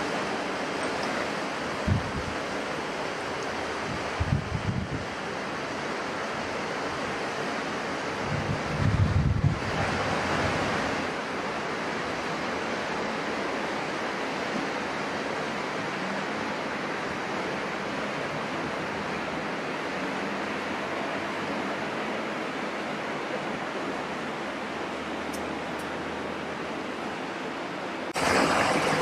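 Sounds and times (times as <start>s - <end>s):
wind buffeting microphone: 1.8s - 2.5s, 3.7s - 5.2s, 8.1s - 11.0s.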